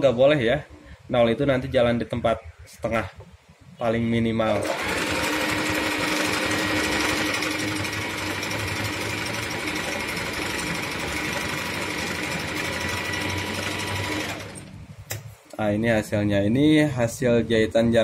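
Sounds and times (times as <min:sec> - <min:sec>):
sewing machine running: 0:04.6 - 0:14.7.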